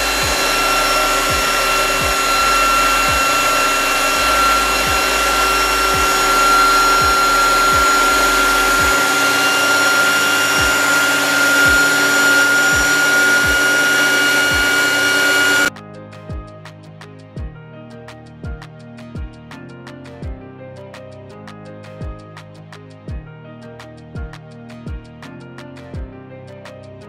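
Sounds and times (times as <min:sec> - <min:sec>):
induction heater whine: 0:00.0 - 0:15.7.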